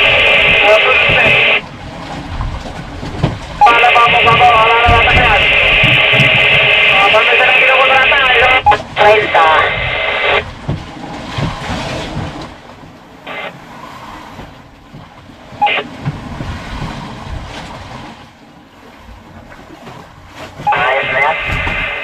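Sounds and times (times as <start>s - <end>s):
two-way radio bursts: 0.0s - 1.6s, 3.6s - 10.4s, 13.3s - 13.6s, 15.6s - 15.9s, 20.7s - 22.0s
fishing boat engine rumble: 0.0s - 22.0s.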